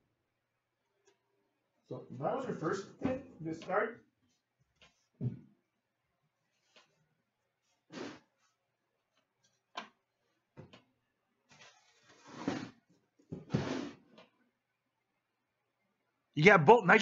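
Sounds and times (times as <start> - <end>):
cardboard box scraping slides: 11.8 - 12.7, 13.5 - 14.0.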